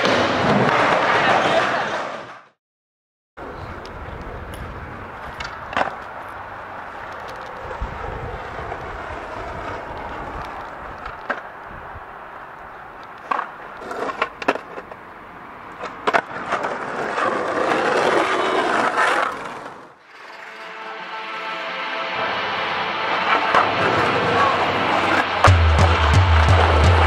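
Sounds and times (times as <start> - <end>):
skateboard wheels rolling on asphalt: 0.0 - 2.4, 3.4 - 27.0
skateboard wooden clacks: 3.8 - 6.3, 13.0 - 15.0.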